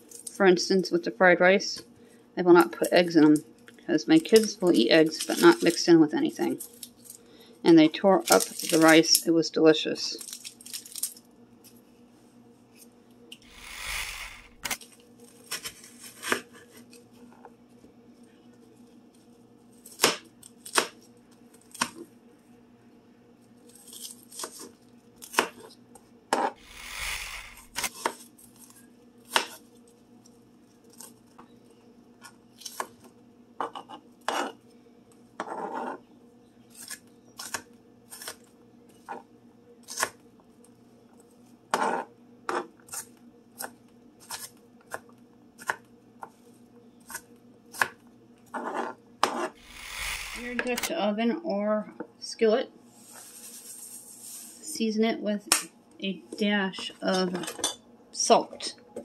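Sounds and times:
knife scraping: 0:33.6 - 0:34.6, 0:48.5 - 0:50.7.

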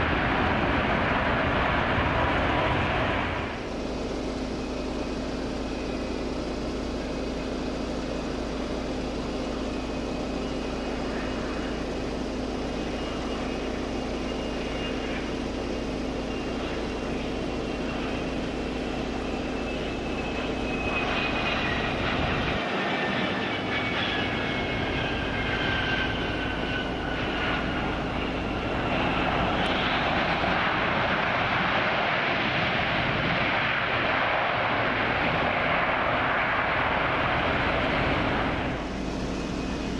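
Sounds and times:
jet engines rushing: 0:00.0 - 0:39.9.

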